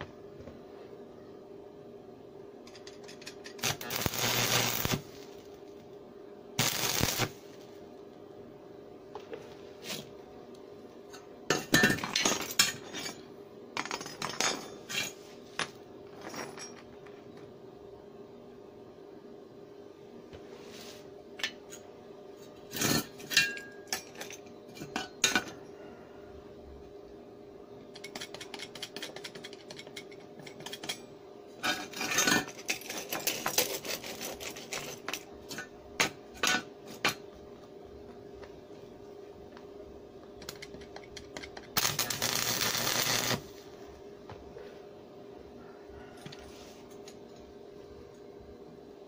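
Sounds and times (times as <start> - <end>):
steady low hum: 0.0 - 49.0
electric arc crackling: 3.6 - 5.6, 6.6 - 7.5, 41.8 - 43.5.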